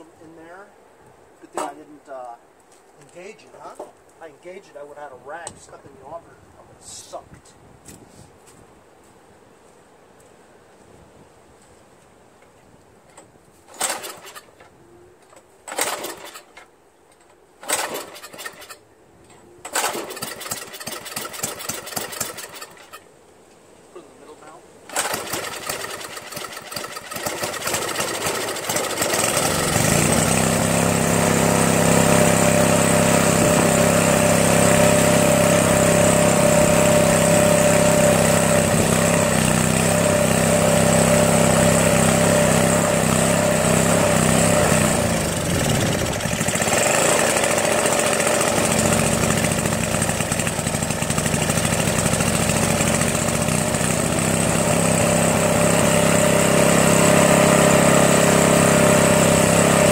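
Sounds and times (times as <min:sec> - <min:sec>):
snowblower engine starting and running: 0:13.1 - 0:23.0, 0:24.9 - 0:59.9.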